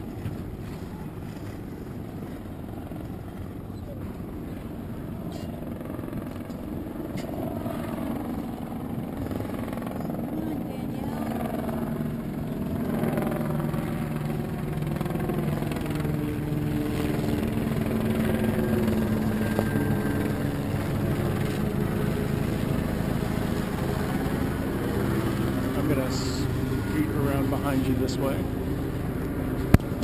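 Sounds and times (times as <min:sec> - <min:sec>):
wind: 0:00.0 - 0:30.0
motorboat engine running: 0:07.3 - 0:30.0.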